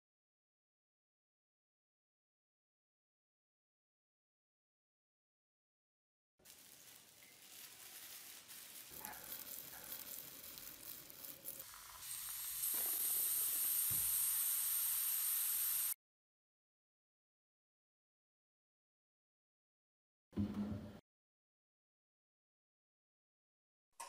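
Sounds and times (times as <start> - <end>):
liquid fizzing in water tank: 6.5 - 16.0.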